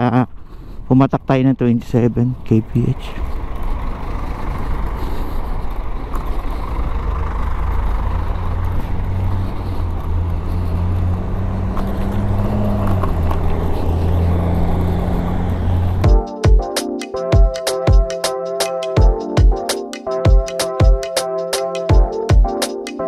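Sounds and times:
road noise: 0.0 - 23.0
electric scooter hum: 3.2 - 16.1.

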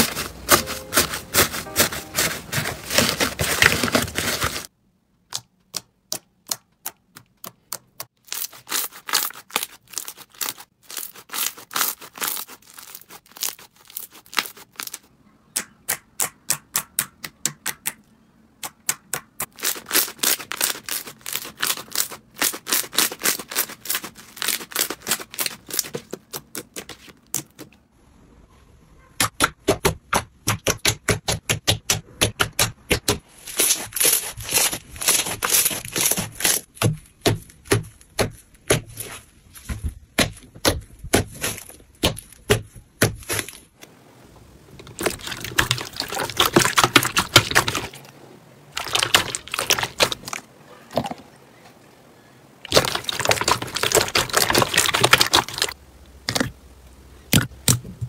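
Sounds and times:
crunchy crackle of bead slime: 8.1 - 15.1, 19.4 - 27.7, 52.6 - 56.5.

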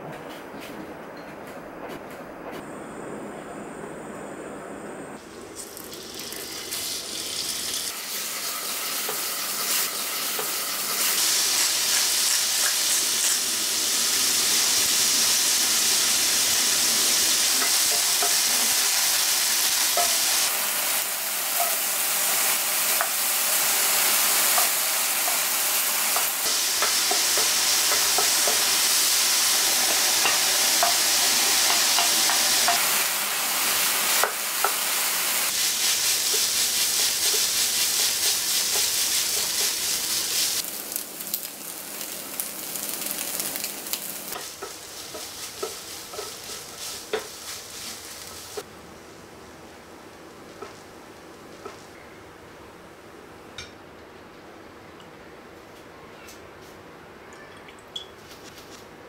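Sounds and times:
chicken sizzling in hot oil: 5.4 - 48.7
wooden spatula scrapes and taps: 44.3 - 48.0.

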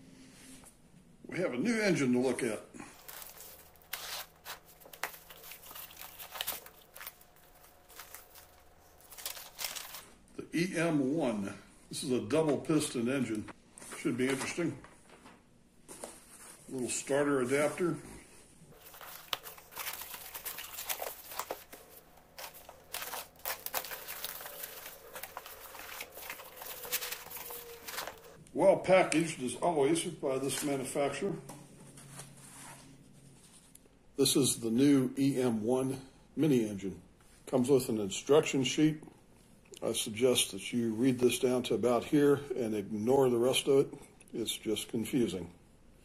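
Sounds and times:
cardboard and foam rustling: 2.9 - 10.1, 18.7 - 28.4
packing tape being slit: 3.0 - 10.1, 18.8 - 28.4.

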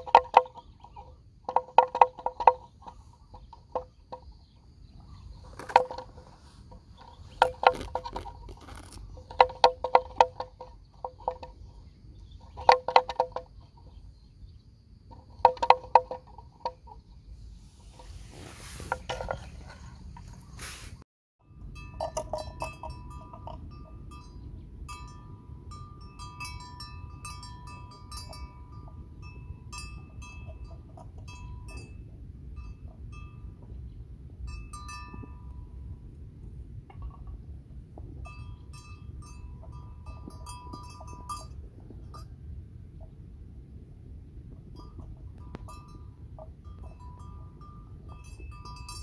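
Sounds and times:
low background rumble: 16.5 - 49.0
small metal bell ringing: 21.4 - 33.7, 34.4 - 36.1, 38.1 - 42.4, 44.7 - 49.0.

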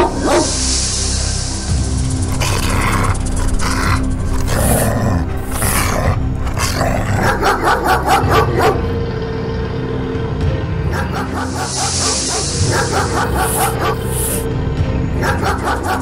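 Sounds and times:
hissing: 0.0 - 8.9, 10.9 - 14.5, 15.2 - 16.0
background music: 0.0 - 16.0
rapid pulsing animal call: 2.1 - 9.0, 10.9 - 14.5, 15.2 - 16.0.

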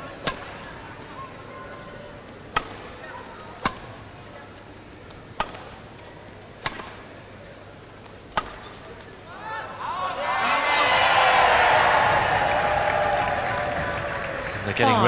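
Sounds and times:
low hall murmur: 0.0 - 15.0
racket hitting shuttlecock: 0.2 - 0.8, 2.5 - 4.0, 5.1 - 7.2, 8.0 - 9.2.

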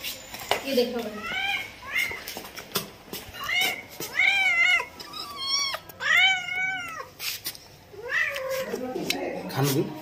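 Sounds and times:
cat meowing: 3.4 - 7.2, 7.9 - 9.0.

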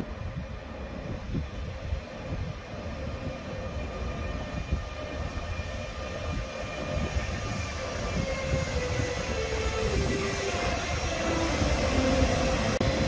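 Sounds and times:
electric locomotive whine: 0.0 - 13.0
wheels rumbling on rails: 0.0 - 13.0.

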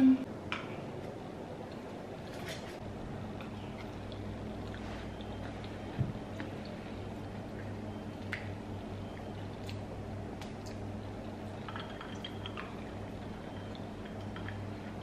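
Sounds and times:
steady low hum: 0.0 - 15.0
soft chewing: 1.6 - 15.0.

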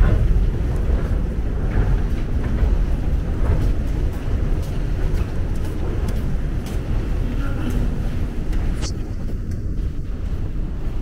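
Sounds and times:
faint footsteps: 0.0 - 11.0
low steady rumble: 0.0 - 11.0.

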